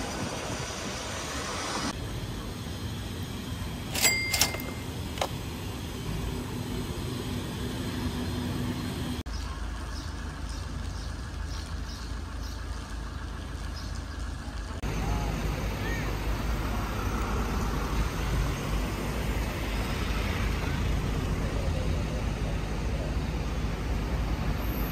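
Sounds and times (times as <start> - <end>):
traffic hum: 0.0 - 24.9
sharp metallic clinks ringing: 3.9 - 5.0.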